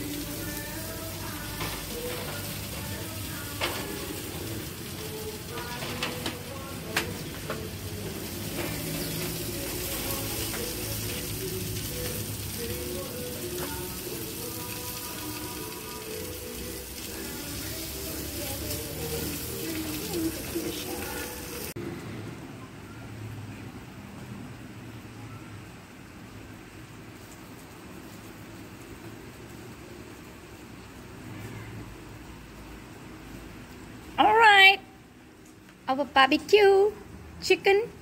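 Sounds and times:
chicken sizzling on barbecue: 0:00.0 - 0:21.8, 0:26.2 - 0:34.7.

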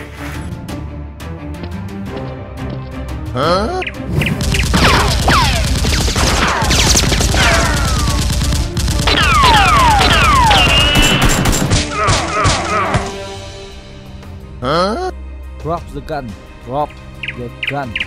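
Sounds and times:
rapid automatic gunfire: 0:04.3 - 0:11.8.

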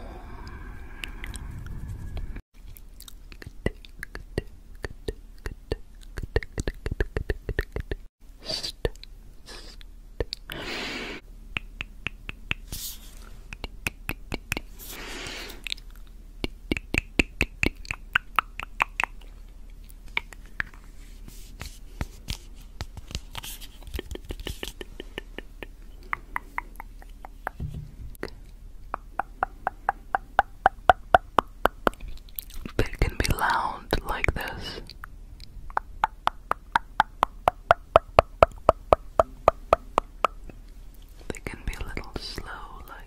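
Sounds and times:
tongue clicking: 0:03.0 - 0:08.1, 0:11.5 - 0:12.7, 0:15.6 - 0:19.4, 0:20.1 - 0:20.8, 0:24.0 - 0:27.6, 0:34.2 - 0:40.6.

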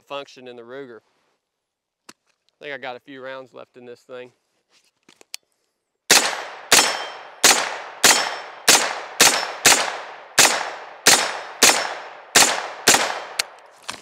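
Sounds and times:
gunshots with echo: 0:06.1 - 0:13.6.

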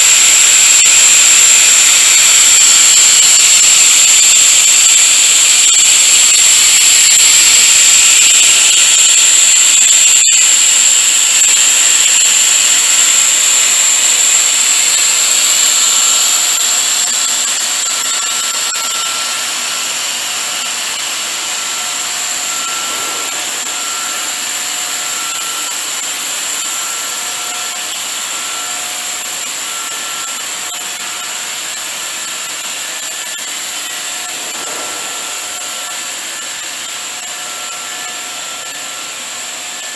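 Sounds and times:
high-pitched machine whine: 0:00.0 - 0:39.9
machinery hiss: 0:21.3 - 0:27.0, 0:34.0 - 0:38.2.

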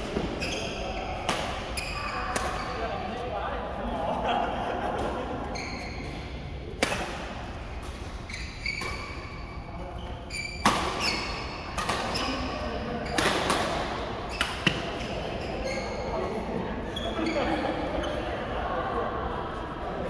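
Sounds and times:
shoes squeaking on court: 0:00.0 - 0:03.0, 0:05.4 - 0:06.5, 0:07.6 - 0:18.3
rackets hitting shuttlecock: 0:01.2 - 0:02.8, 0:06.0 - 0:09.4, 0:10.4 - 0:15.2.

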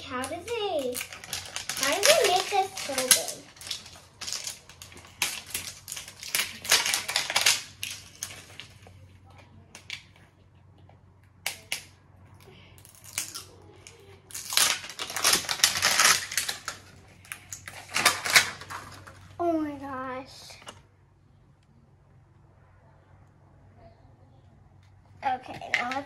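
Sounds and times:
packaging torn and crinkled: 0:00.2 - 0:08.9, 0:12.8 - 0:19.3.

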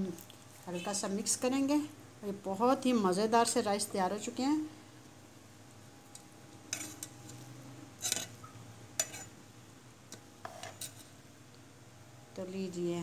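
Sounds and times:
spoon scraping metal pot: 0:06.7 - 0:07.4, 0:08.0 - 0:09.4, 0:10.4 - 0:11.1.

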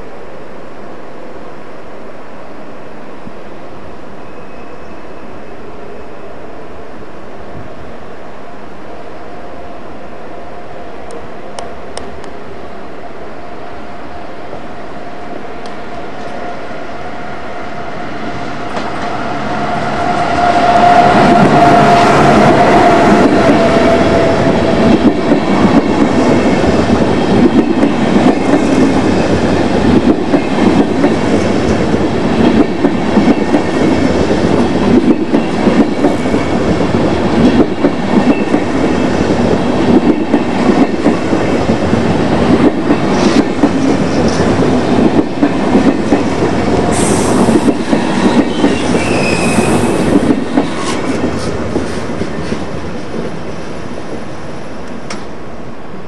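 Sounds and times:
locomotive whine: 0:00.1 - 0:56.0
train wheels clicking over rail joints: 0:37.3 - 0:53.3.

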